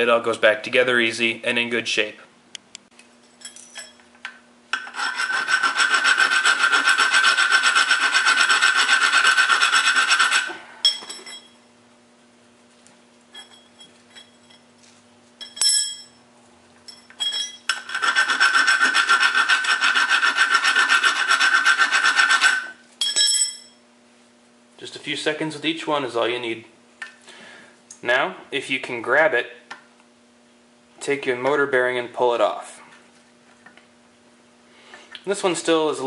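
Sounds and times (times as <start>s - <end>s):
hand file rasping on metal: 4.8s - 10.6s, 17.8s - 22.8s.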